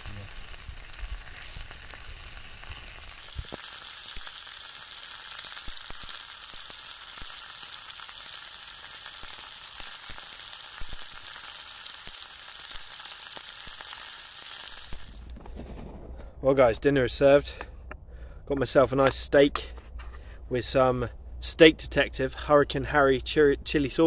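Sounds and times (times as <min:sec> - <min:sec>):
steak sizzling in a pan: 0:00.0 - 0:15.3.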